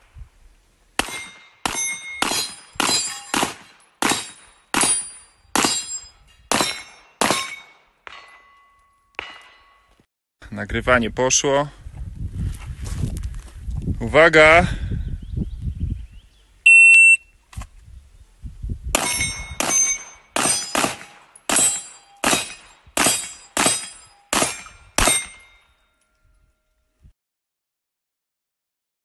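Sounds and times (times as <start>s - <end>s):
rifle shots: 1.0s - 7.7s, 19.0s - 25.4s
shot timer beep: 16.7s - 17.2s.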